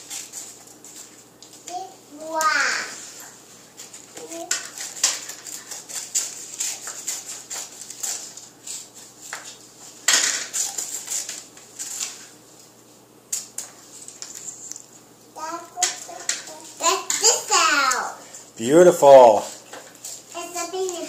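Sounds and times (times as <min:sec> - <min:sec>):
scissors snipping paper: 0:03.8 - 0:08.8.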